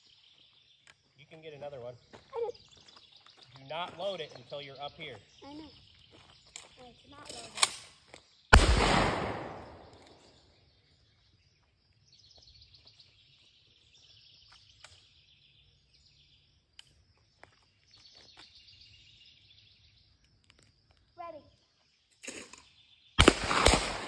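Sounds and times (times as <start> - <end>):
birds chirping: 0.0 - 24.0
shotgun shot with echo: 8.5 - 9.9, 23.2 - 24.0.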